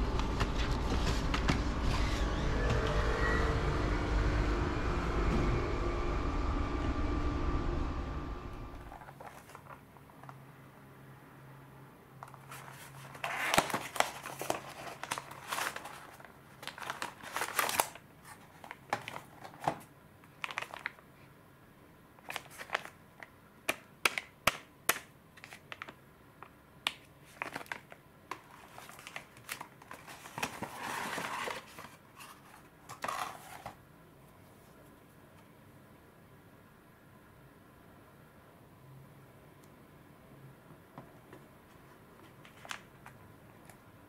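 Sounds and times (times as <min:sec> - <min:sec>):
packaging rustling and scraping: 0:08.8 - 0:10.3, 0:12.2 - 0:21.0, 0:22.2 - 0:23.0, 0:27.2 - 0:33.8.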